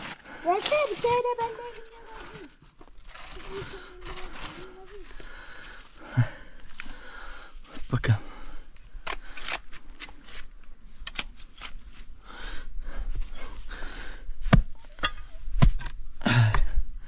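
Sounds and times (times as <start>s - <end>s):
hand tool scraping soil and stone: 0.0s - 5.2s, 9.0s - 12.0s, 14.4s - 16.6s.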